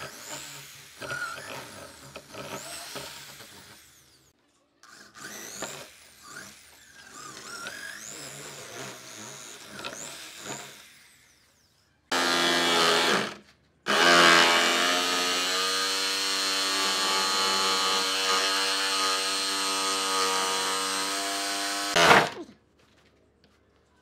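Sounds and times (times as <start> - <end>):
electric power tool motor: 0.0 - 22.4.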